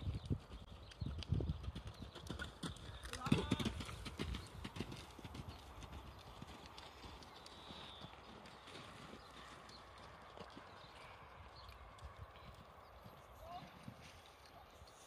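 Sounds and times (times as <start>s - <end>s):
horse hoofbeats on sand: 0.1s - 11.2s.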